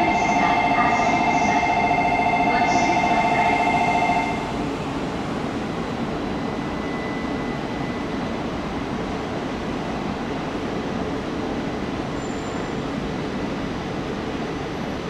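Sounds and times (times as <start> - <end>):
electronic platform bell trill: 0.0 - 4.4.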